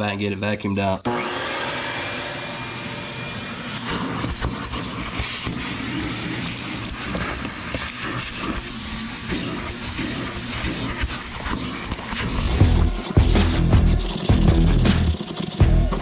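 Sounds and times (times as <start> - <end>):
shop vac running: 1.0 - 16.0
debris rattling up a hose: 12.5 - 16.0.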